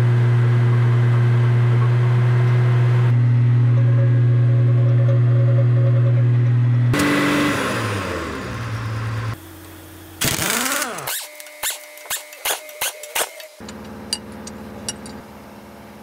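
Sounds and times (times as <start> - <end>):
loud mechanical hum: 0.0 - 16.0
machine winding down: 10.2 - 13.7
pneumatic impact wrench rattling: 10.2 - 15.2.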